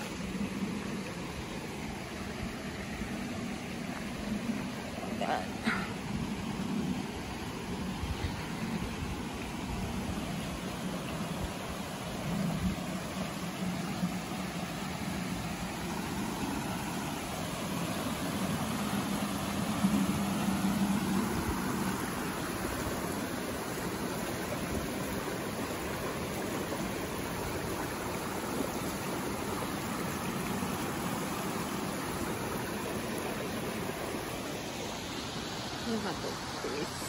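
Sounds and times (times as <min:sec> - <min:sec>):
creek rushing over rocks: 0:00.0 - 0:37.0
low steady hum: 0:00.0 - 0:37.0.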